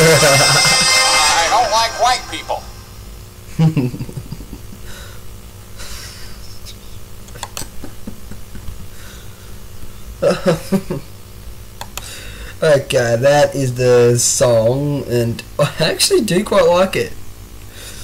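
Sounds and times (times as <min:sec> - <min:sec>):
man laughing: 0:00.0 - 0:02.6, 0:03.5 - 0:05.1, 0:05.8 - 0:09.0, 0:10.2 - 0:11.1
low steady hum: 0:00.0 - 0:18.0.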